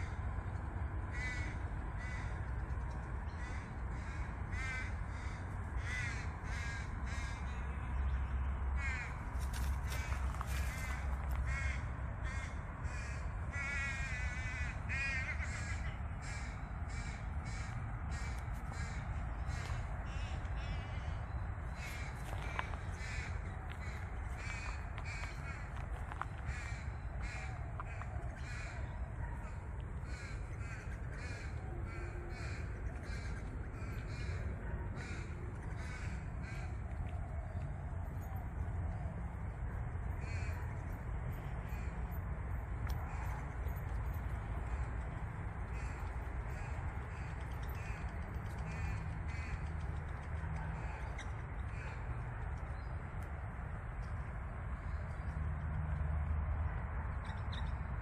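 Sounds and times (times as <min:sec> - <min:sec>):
steady low rumble: 0:00.0 - 0:58.0
birds calling harshly: 0:03.3 - 0:36.9, 0:42.9 - 0:53.0.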